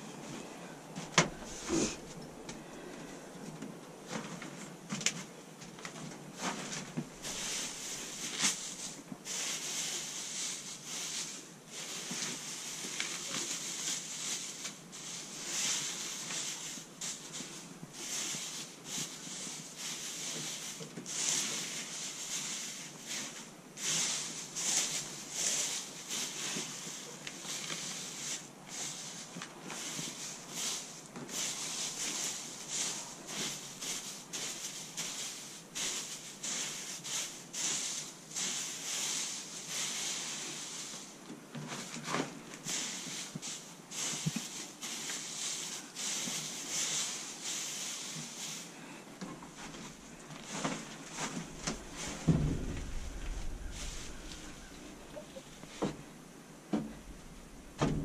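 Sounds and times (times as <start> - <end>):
dry bedding rustling and crackling: 0.2 - 58.0
sharp knocks: 52.0 - 56.0.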